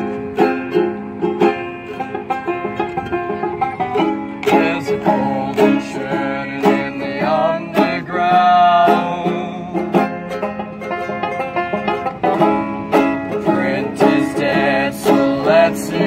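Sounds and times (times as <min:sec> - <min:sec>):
banjo playing: 0:00.0 - 0:16.0
ukulele strumming: 0:00.0 - 0:16.0
person singing: 0:04.5 - 0:10.1, 0:13.4 - 0:16.0.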